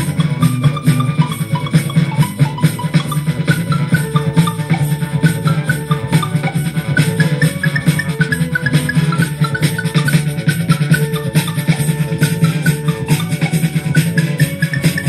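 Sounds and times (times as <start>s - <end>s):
music with percussion and bass: 0.0s - 15.0s.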